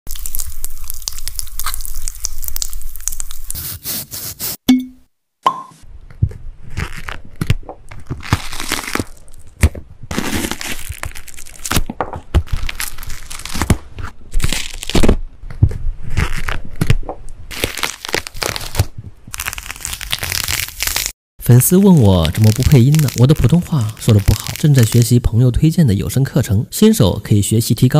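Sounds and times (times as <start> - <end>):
pomegranate crackling under knife: 6.6 - 21.2, 22.2 - 25.2.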